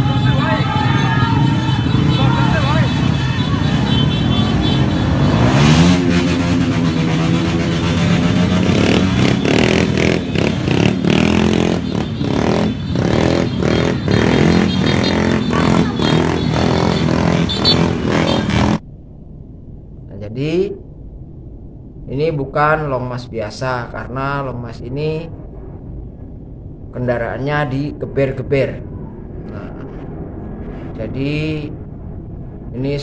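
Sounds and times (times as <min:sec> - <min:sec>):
motorcycle engines revving: 0:00.0 - 0:18.8.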